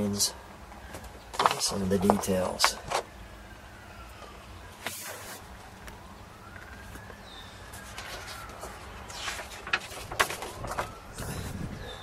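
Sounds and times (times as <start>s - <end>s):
distant siren wailing: 2.4s - 12.0s
rustles: 4.1s - 12.0s.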